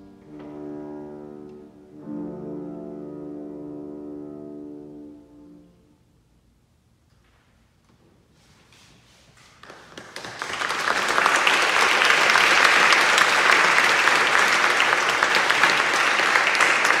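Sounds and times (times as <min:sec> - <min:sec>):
audience applause: 0:09.6 - 0:17.0.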